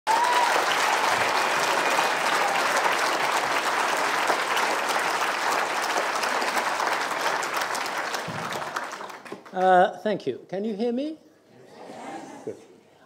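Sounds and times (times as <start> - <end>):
audience applauding: 0.1 - 9.7.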